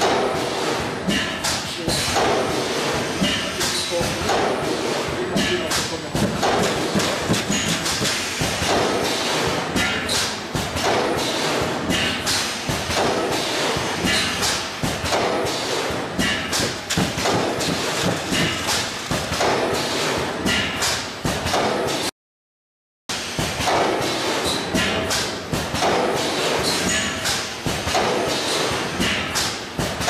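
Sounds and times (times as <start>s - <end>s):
machine mechanical clatter: 0.0s - 22.1s.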